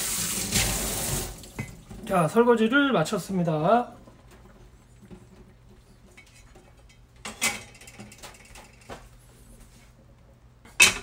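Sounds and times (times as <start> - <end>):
metal griddle knocking and clattering: 10.7 - 11.0.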